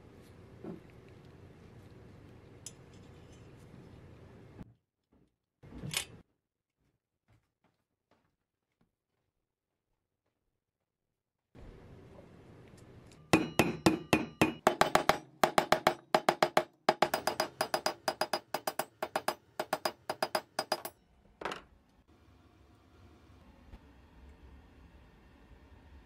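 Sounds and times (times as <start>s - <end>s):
hammer tapping steel axle: 13.3s - 20.9s.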